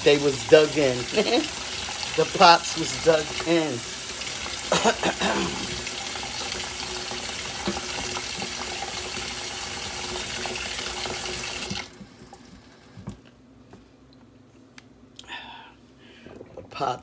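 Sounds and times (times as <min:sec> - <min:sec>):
faucet water splashing in sink: 0:00.0 - 0:12.6.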